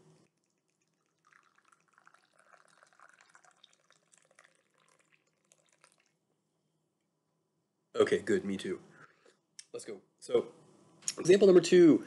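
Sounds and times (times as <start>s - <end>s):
drink pouring into metal cup: 0.2s - 6.2s.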